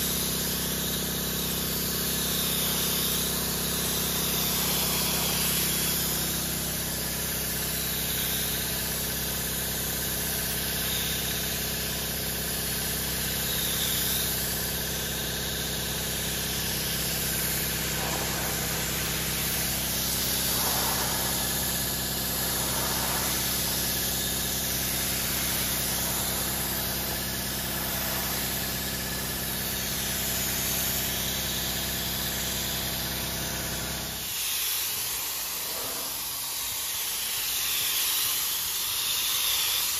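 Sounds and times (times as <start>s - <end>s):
spray gun hissing: 0.0s - 39.9s
low machine hum: 16.0s - 31.3s.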